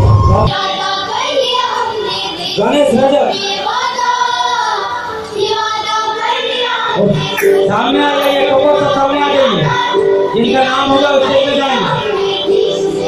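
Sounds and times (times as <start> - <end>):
person singing high: 6.9 - 13.0
musical accompaniment: 7.2 - 13.0.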